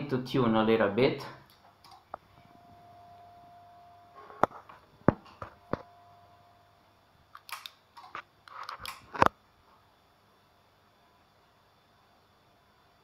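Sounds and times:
faint steady tone: 0:02.3 - 0:04.5, 0:05.5 - 0:07.2.

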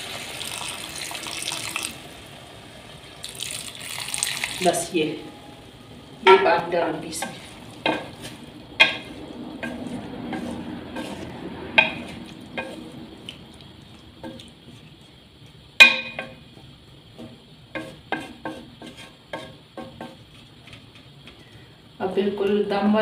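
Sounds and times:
low sizzle: 0:00.0 - 0:23.0
wooden spatula scraping steel pan: 0:06.3 - 0:13.0, 0:17.2 - 0:21.1.

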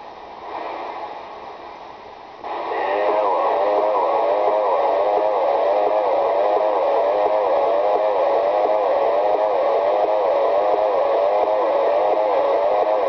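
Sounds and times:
radio hiss: 0:00.0 - 0:13.0
warbling tone pattern: 0:02.7 - 0:13.0.

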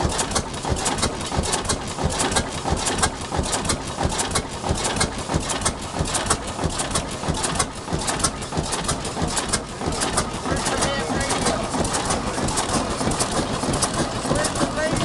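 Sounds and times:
boat diesel engine running: 0:00.0 - 0:15.0
valve gear clattering: 0:00.0 - 0:15.0.

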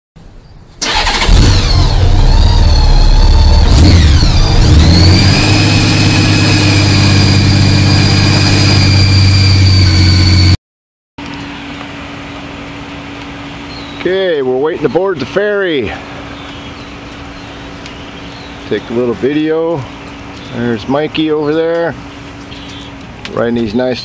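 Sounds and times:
motorcycle engine revving: 0:00.8 - 0:10.6.

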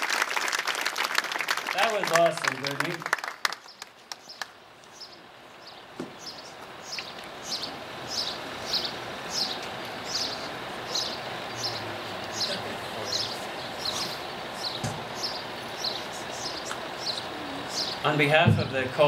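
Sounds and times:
applause: 0:00.0 - 0:04.6
outdoor background noise: 0:00.0 - 0:19.0
bird chirping: 0:03.6 - 0:18.3.

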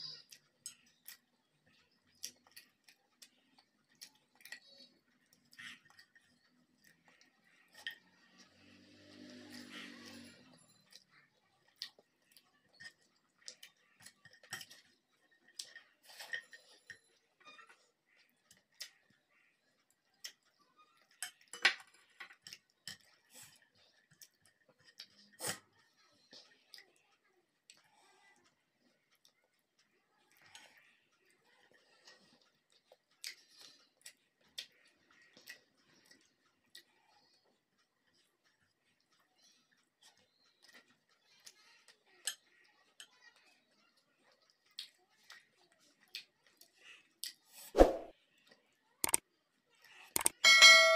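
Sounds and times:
chewing: 0:00.0 - 0:47.7
fingers mixing food on plate: 0:00.0 - 0:50.8
sharp little clicks: 0:49.0 - 0:49.2, 0:50.2 - 0:50.4.

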